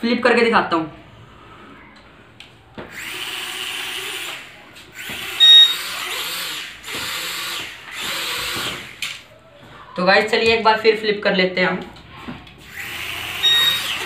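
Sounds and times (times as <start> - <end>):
toy drone propellers whirring: 2.9 - 9.2, 12.6 - 14.0
short high beep: 13.4 - 14.0.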